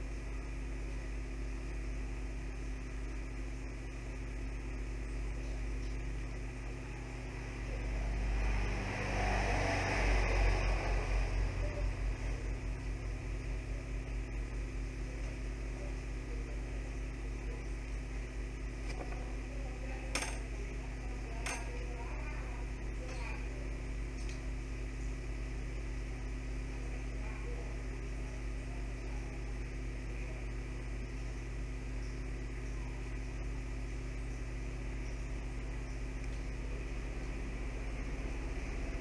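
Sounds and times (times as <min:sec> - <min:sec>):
electrical mains hum: 0:00.0 - 0:39.0.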